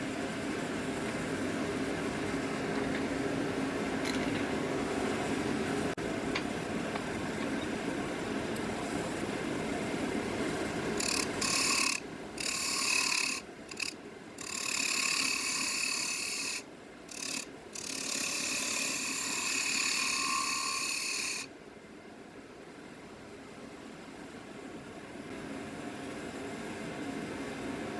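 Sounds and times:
turning tool scraping wood: 11.0s - 21.5s
wood lathe running: 11.0s - 21.5s.

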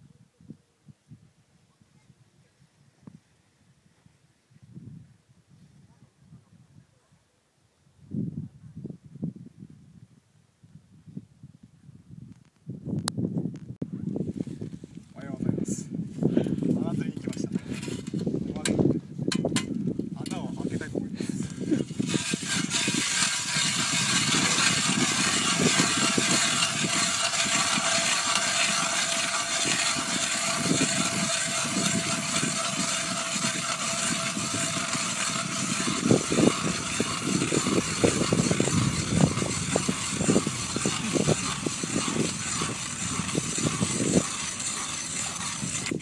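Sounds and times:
ice auger grinding through ice: 17.3s - 18.3s, 20.3s - 46.0s.

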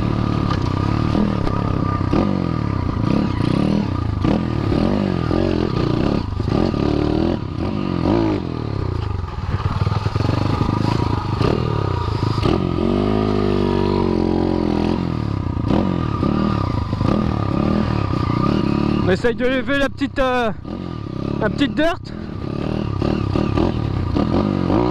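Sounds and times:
bike rattling and clattering: 0.0s - 14.9s
dirt bike engine revving: 0.0s - 24.9s.

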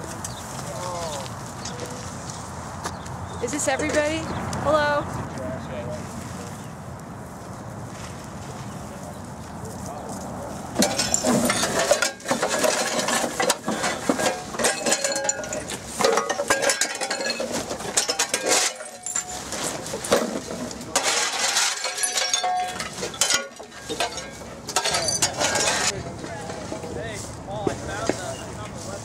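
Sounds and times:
metal shovel scraping dirt: 10.8s - 26.9s.

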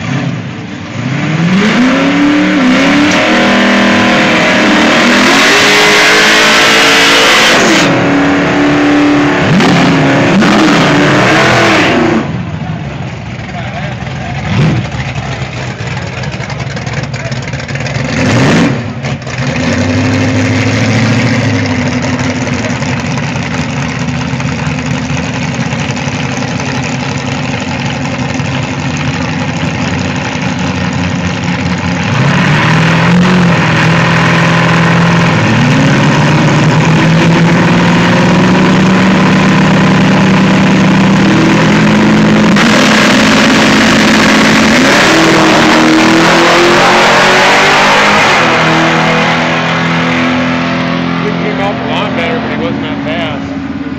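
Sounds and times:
drag car engine accelerating: 0.0s - 53.9s.

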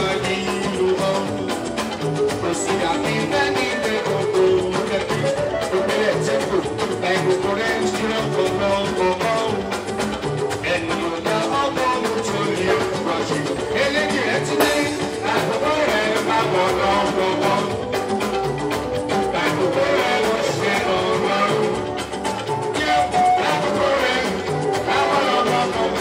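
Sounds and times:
music with singing and drums: 0.0s - 26.0s.

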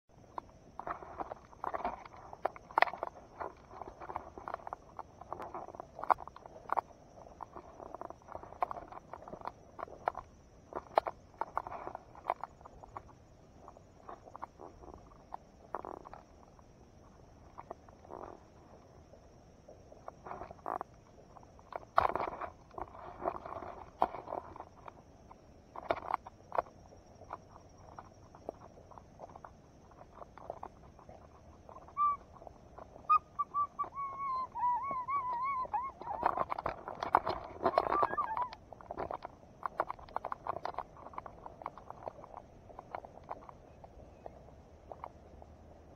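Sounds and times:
rustling stems and leaves: 0.2s - 45.9s
whistled calls: 31.7s - 32.4s, 33.0s - 36.5s, 37.6s - 38.6s.

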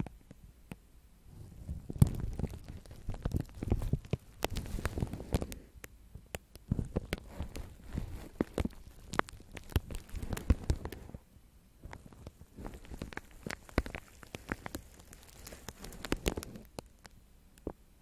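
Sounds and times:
brushes crinkling cling film: 1.8s - 5.7s, 6.6s - 11.2s, 11.9s - 17.1s.

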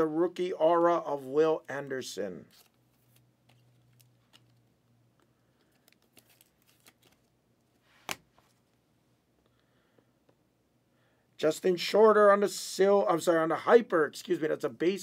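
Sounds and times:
plastic sleeve rustling: 2.4s - 8.8s.

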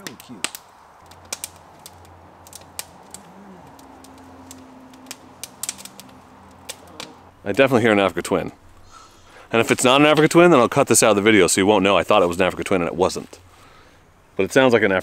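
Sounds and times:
distant motorcycle engine hum: 0.0s - 10.5s
campfire crackling and popping: 0.0s - 14.0s.

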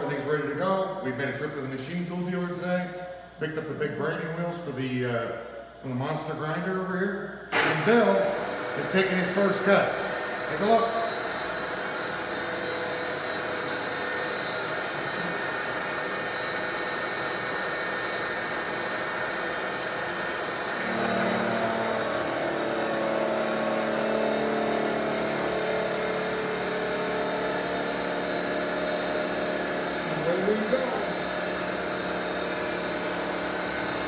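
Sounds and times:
cutter cutting metal: 7.5s - 34.0s
milling machine motor whir: 7.5s - 34.0s.

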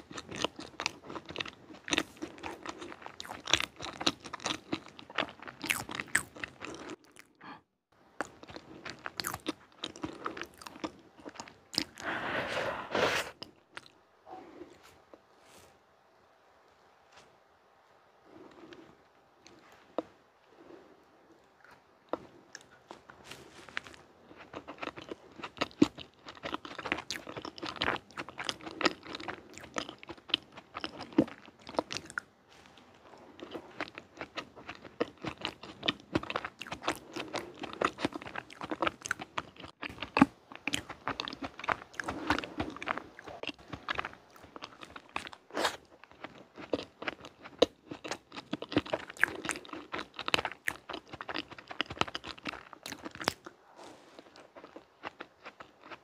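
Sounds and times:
chewing dessert: 0.0s - 7.4s, 8.2s - 14.0s, 18.2s - 56.0s.

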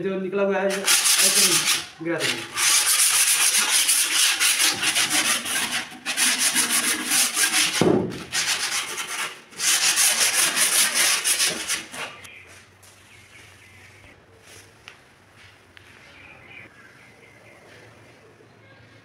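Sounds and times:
abrasive scraping wood edge: 0.7s - 12.3s.

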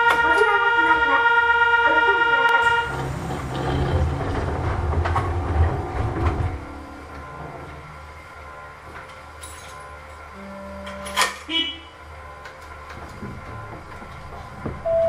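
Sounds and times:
steady electronic buzzer tone: 0.0s - 3.7s, 10.3s - 12.4s
low mechanical rumble: 0.0s - 15.0s
mechanical knocks: 2.7s - 8.0s, 12.3s - 14.9s.

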